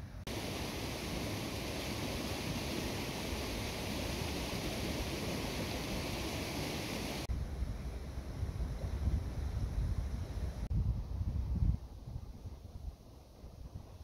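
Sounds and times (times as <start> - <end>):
steady rushing hiss: 0.0 - 10.7.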